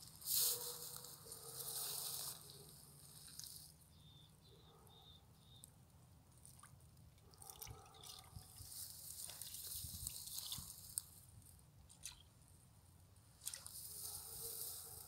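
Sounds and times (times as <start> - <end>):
bird pecking at ice and water: 6.3 - 11.1, 11.8 - 12.4.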